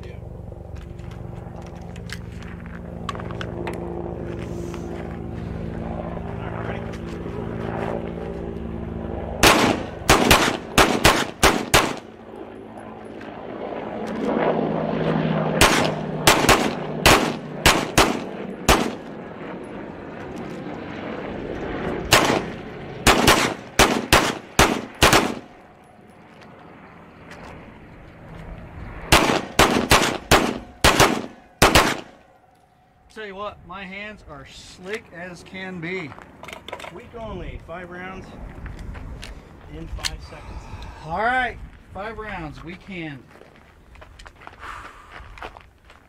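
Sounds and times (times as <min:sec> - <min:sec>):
handguns firing: 0:09.4 - 0:12.1, 0:15.6 - 0:19.1, 0:22.1 - 0:25.5, 0:29.1 - 0:32.2.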